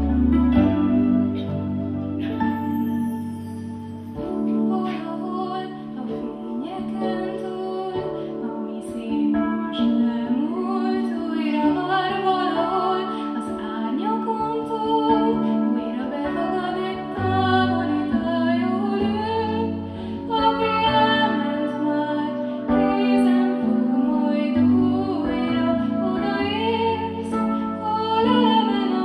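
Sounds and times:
sustained chords: 0.0s - 14.4s.

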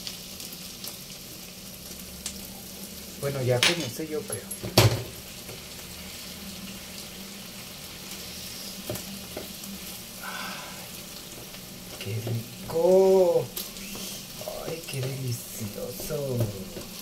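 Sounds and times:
food sizzling in a pan: 0.0s - 17.0s
wooden spatula knocking on pan: 16.0s - 17.0s.

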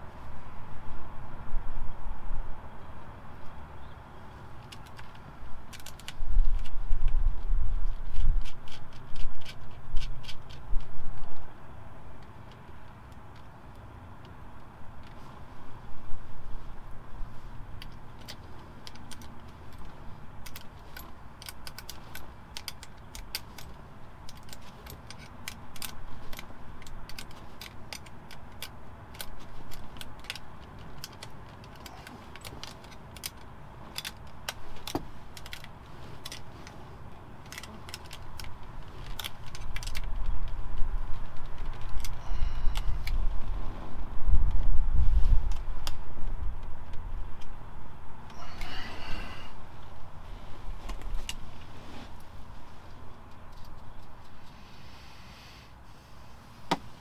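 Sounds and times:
hand tool clicking on screws: 7.9s - 11.3s, 17.8s - 36.8s, 37.4s - 43.2s.

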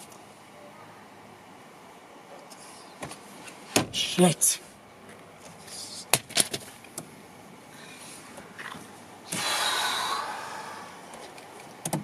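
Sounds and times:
man sighing heavily: 9.3s - 11.0s
handling clicks and knocks: 11.1s - 12.0s.

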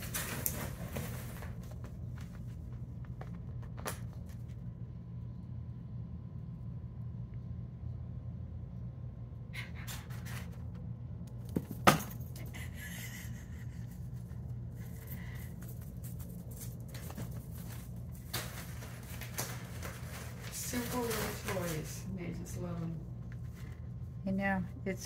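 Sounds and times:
kittens playing on tile floor: 0.0s - 5.3s, 9.6s - 24.3s
steady low hum: 0.0s - 25.0s.

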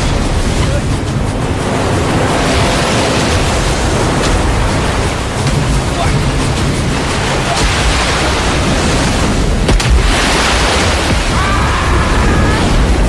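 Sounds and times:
heavy waves crashing on deck: 0.0s - 13.0s
steady wind: 0.0s - 13.0s
sharp crack: 9.6s - 11.4s.

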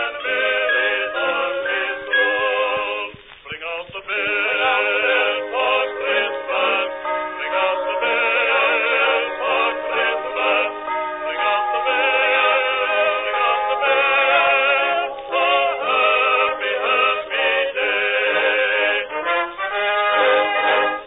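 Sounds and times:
melody with vibrato over chords: 5.4s - 16.9s.

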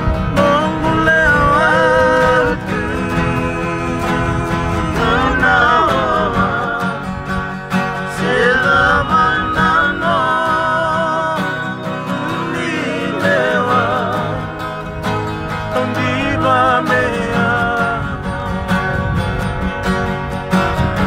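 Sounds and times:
men singing: 0.0s - 18.4s
acoustic guitars strumming: 0.0s - 21.0s.

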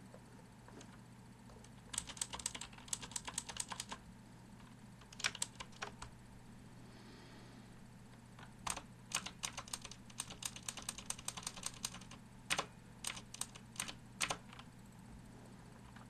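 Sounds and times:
clicky keyboard typing: 0.7s - 4.0s, 4.6s - 6.1s, 8.4s - 14.7s.

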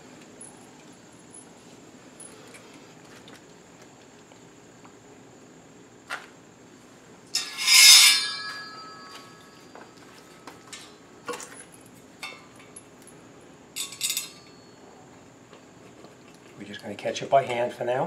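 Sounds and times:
metal rail clanking and rattling: 7.4s - 9.5s, 13.8s - 14.6s
short metallic ring: 7.4s - 10.9s, 13.8s - 14.8s.

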